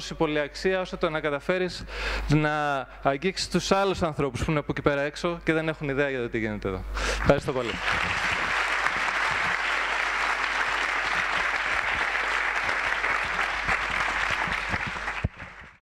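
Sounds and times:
audience clapping: 7.2s - 15.8s.

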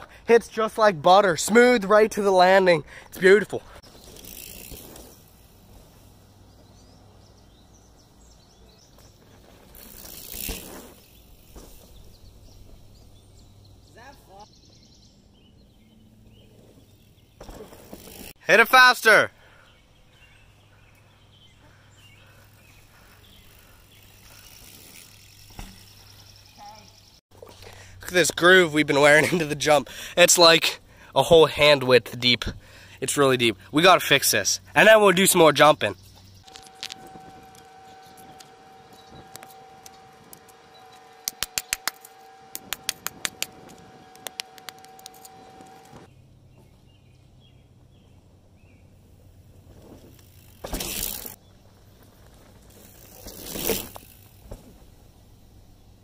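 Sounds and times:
pulsing high insect buzz: 3.9s - 6.6s, 22.3s - 27.1s, 36.4s - 46.1s
bird chirps: 35.2s - 43.4s
low steady hum: 36.4s - 46.3s.

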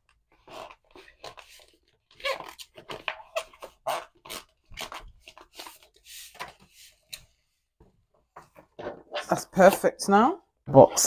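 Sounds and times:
squeegee scraping plastic film: 0.3s - 7.2s.

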